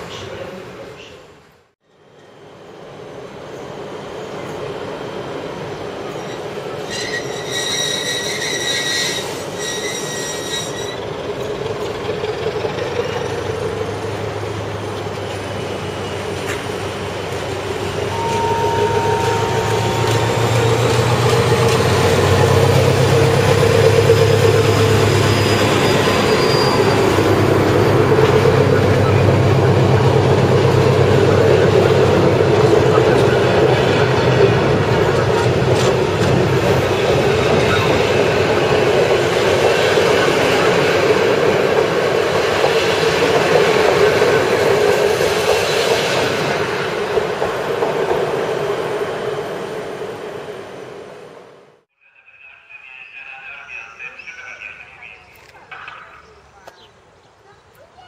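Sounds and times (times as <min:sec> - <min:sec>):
train carriages rolling by: 0:01.8 - 0:58.0
diesel locomotive engine hum: 0:10.7 - 0:57.4
locomotive horn blasts: 0:18.1 - 0:21.0.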